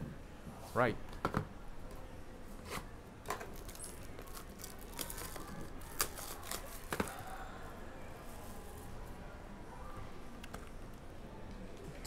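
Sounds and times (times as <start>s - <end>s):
plastic packaging crinkling: 3.5s - 6.9s.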